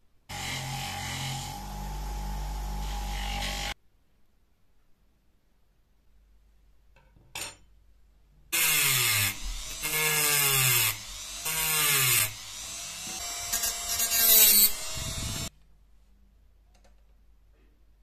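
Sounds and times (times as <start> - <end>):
rotary tool grinding: 8.6 - 15.5.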